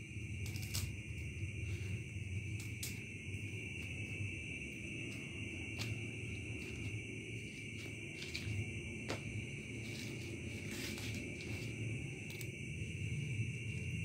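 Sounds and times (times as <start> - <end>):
crickets trilling: 0.0 - 14.0
low hum: 0.0 - 14.0.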